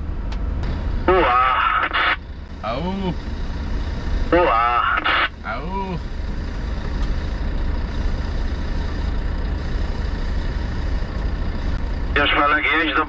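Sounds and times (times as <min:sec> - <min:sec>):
truck engine running: 0:00.0 - 0:13.0.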